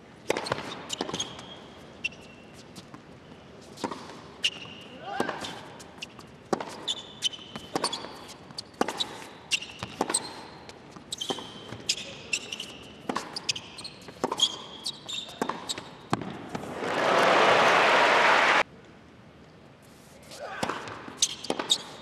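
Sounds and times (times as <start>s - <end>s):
shoes squeaking: 0.2s - 16.7s, 19.9s - 22.0s
tennis ball struck by racquets: 6.5s - 6.9s, 15.4s - 17.0s
crowd applause: 16.7s - 18.6s.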